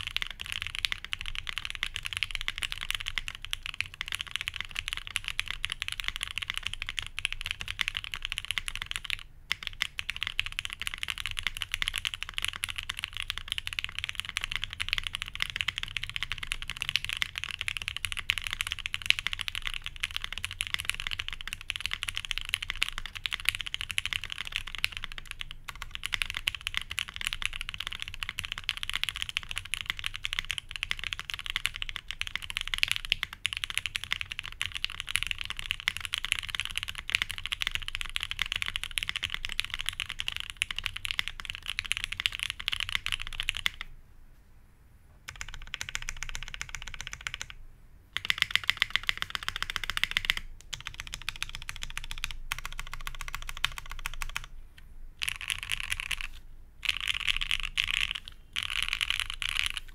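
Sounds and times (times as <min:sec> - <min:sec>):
fast typing on mechanical keyboard: 0:00.0 - 0:43.9, 0:45.3 - 0:47.6, 0:48.2 - 0:54.5, 0:55.2 - 0:59.9.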